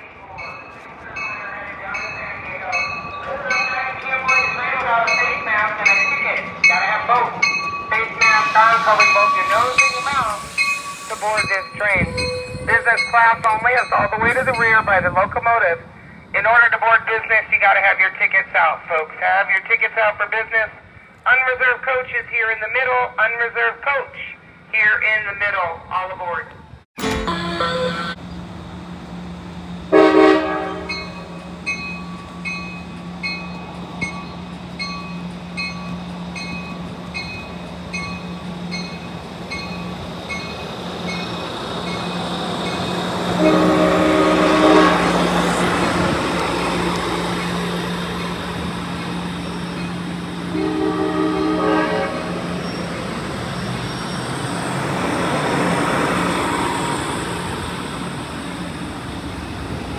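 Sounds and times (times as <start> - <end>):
locomotive bell ringing: 0.0 - 15.3, 27.0 - 28.5, 29.9 - 54.3
train rumbling past: 0.0 - 18.8, 26.6 - 59.9
train air horn blasts: 29.9 - 31.0, 43.4 - 45.2, 50.5 - 52.5.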